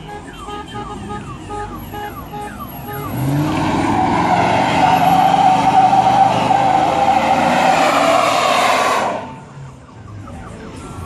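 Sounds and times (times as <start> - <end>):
truck engine working hard: 0.0 - 9.6
tires squealing: 1.0 - 9.7.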